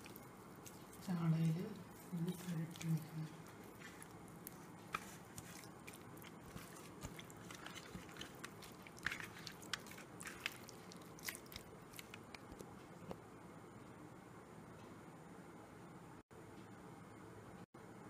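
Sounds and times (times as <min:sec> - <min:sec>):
hands squelching wet paste on fish: 0:00.0 - 0:12.6.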